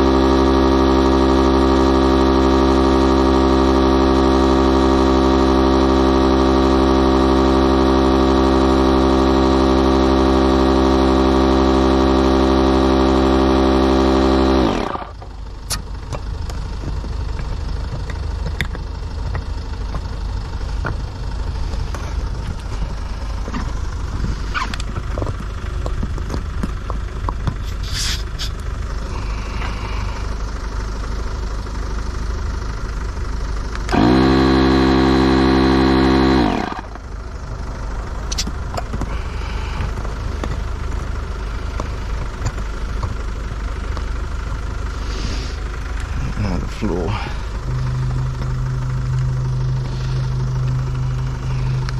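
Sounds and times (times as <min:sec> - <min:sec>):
electric inflation pump humming: 0:00.0 - 0:30.6, 0:33.7 - 0:51.9
clicks of hose and valves: 0:38.3 - 0:39.2.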